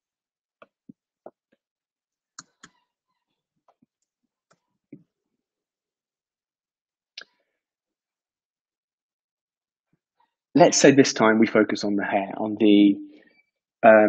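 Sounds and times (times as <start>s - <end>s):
stylus and keyboard clicks: 2.4s - 2.8s.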